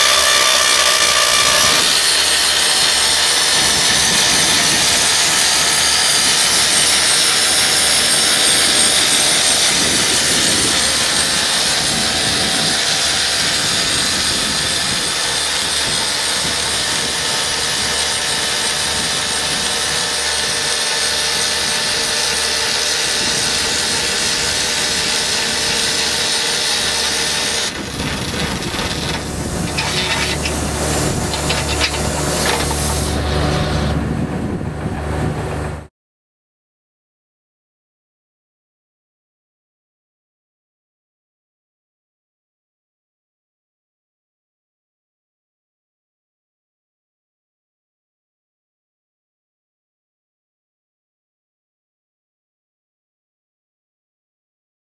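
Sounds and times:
rock drill boring into stone: 0.0s - 34.0s
excavator engine running: 0.0s - 35.9s
air blowing dust: 23.0s - 34.6s.

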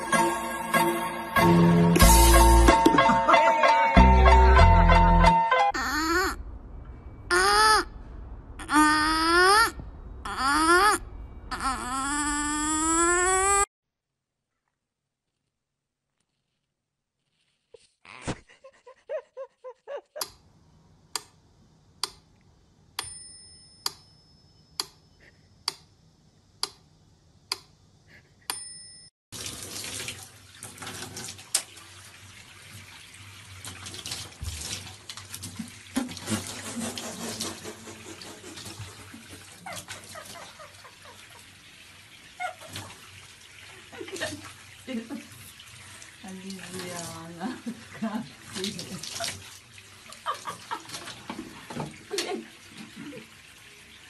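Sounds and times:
water pouring into bathtub: 29.3s - 54.0s.

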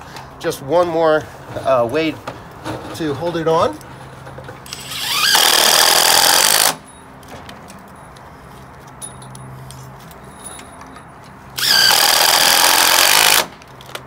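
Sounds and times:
cordless driver driving screw: 4.7s - 6.8s, 11.6s - 13.5s.

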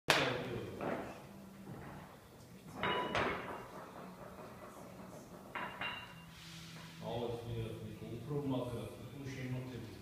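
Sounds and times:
barbell plates clanking: 2.7s - 6.3s.

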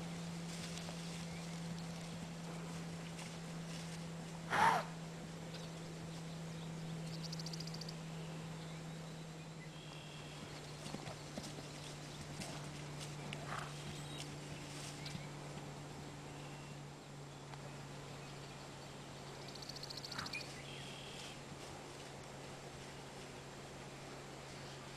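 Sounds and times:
steady low hum: 0.0s - 24.9s
horse calling: 4.5s - 5.0s
faint hoof sounds: 9.8s - 16.9s.

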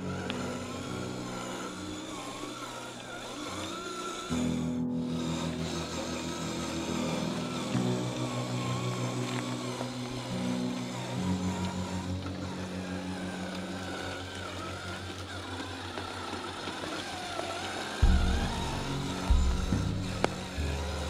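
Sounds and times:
electric motor whine: 0.0s - 21.0s
background music with bass line: 18.0s - 21.0s.

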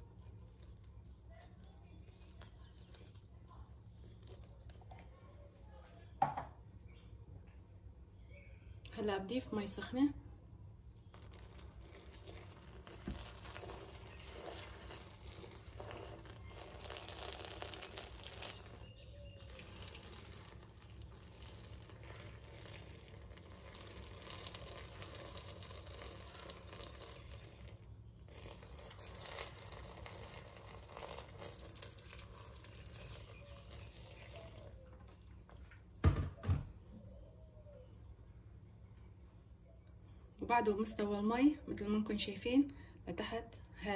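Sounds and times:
water pouring into metal pot: 11.1s - 34.9s.

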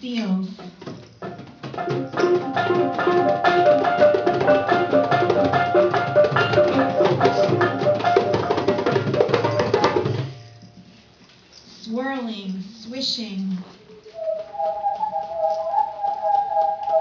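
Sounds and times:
hand drums beating: 0.5s - 10.6s, 14.2s - 17.0s
metal mallet instruments ringing: 1.2s - 10.8s.

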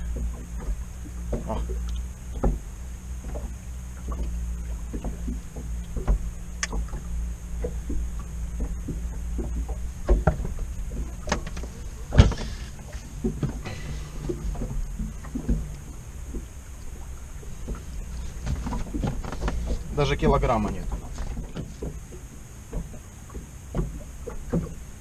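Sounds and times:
fish handled in inflatable boat: 0.0s - 25.0s
low steady hum: 0.0s - 25.0s
loud thump: 12.1s - 12.5s
fishing tackle clicks and rustles: 17.5s - 22.9s.

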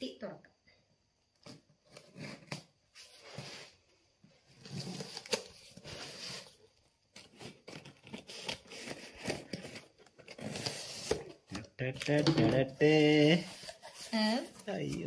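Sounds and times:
scissors cutting tape and cardboard: 7.2s - 11.4s.

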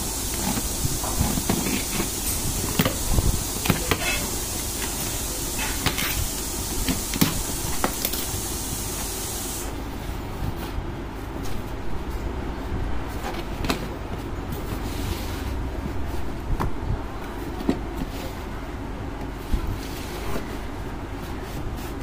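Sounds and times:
steady high hiss: 0.0s - 9.8s
cardboard scraping and crinkling: 13.1s - 16.7s, 19.2s - 22.0s.

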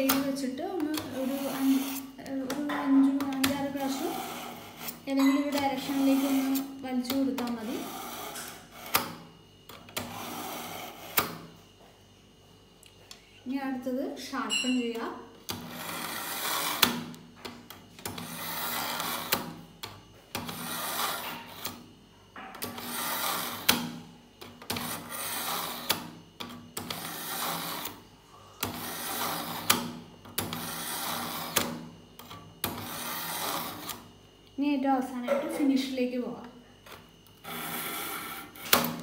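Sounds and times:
knife scraping through sharpener: 3.8s - 6.7s, 15.6s - 16.9s.

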